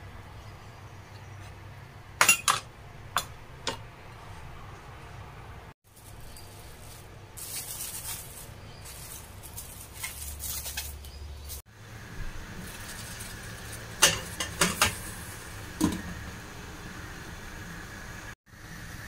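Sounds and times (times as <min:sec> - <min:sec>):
cling film crinkling: 0:05.9 - 0:11.6, 0:12.6 - 0:14.0.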